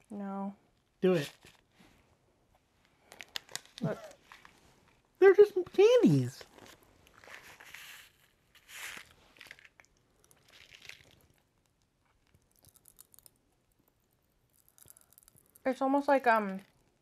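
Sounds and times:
candy packet crinkling: 3.0s - 17.0s
hard candy crunching: 6.4s - 17.0s.

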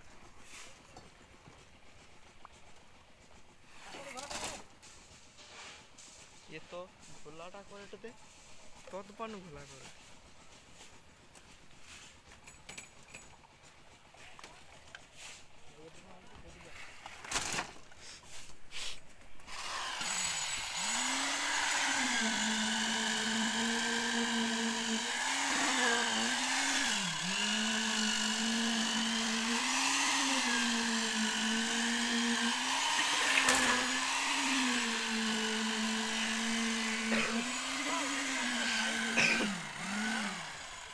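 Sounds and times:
concrete vibrator motor humming: 19.5s - 40.9s.

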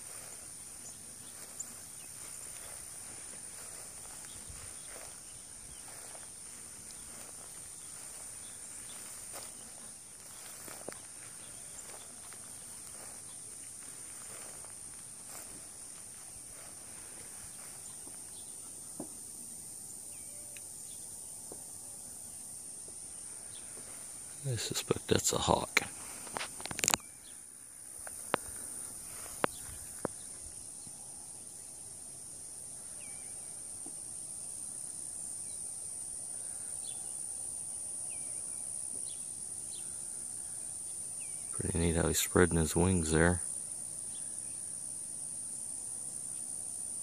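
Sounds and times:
small birds chirping: 0.0s - 31.8s, 32.7s - 44.9s
insect chorus buzzing: 0.0s - 47.0s
faint ticks: 20.5s - 20.7s, 26.2s - 27.4s, 28.0s - 30.2s.

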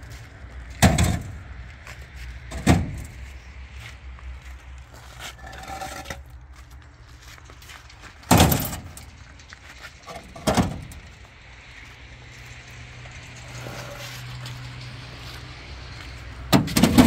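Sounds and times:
blocks clattering and scraping: 5.3s - 6.3s.

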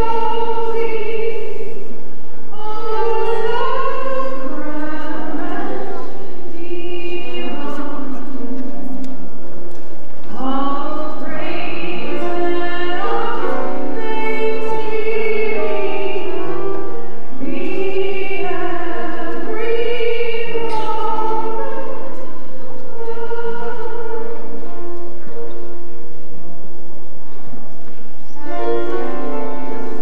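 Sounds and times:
church choir singing a hymn: 10.4s - 24.6s.

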